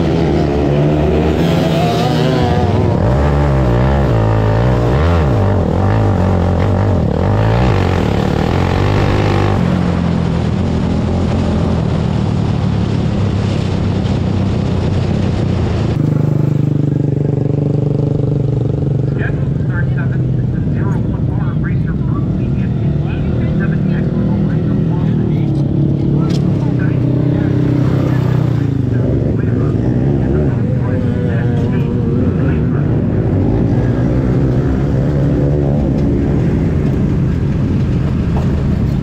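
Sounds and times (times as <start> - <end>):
kart engine revving: 0.0 - 11.8, 15.7 - 21.2, 22.1 - 39.0.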